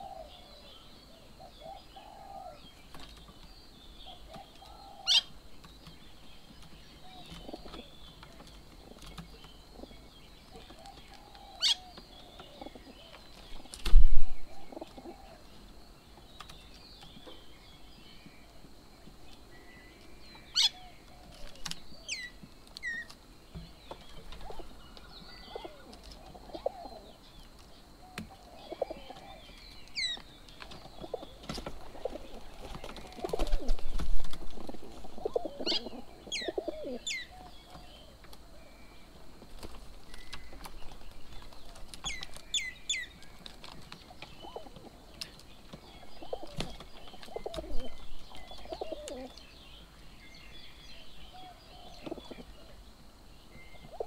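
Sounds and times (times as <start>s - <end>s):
pigeons cooing: 0.0s - 2.7s, 4.0s - 5.4s, 7.0s - 9.0s, 9.7s - 15.5s, 24.2s - 27.2s, 28.0s - 30.2s, 30.8s - 38.6s, 43.7s - 45.0s, 45.7s - 49.4s, 51.3s - 52.8s, 53.7s - 54.0s
flurry of wingbeats: 31.4s - 35.1s
birds whistling: 45.8s - 52.8s.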